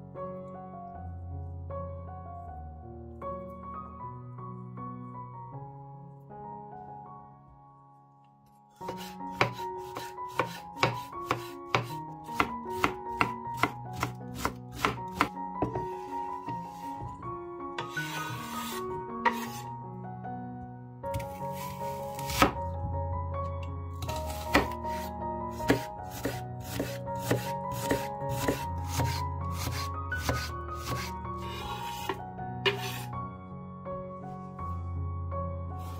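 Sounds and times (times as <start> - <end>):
soft background music: 0.0 - 35.9
knife chopping on cutting board: 8.8 - 17.1, 17.8 - 19.7, 22.0 - 22.6, 24.0 - 33.0.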